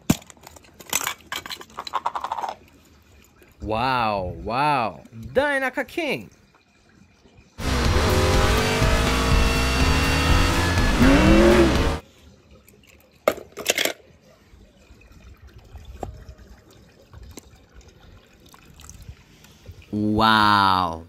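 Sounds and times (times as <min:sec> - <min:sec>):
race car engine sound effect: 0:07.6 - 0:12.0.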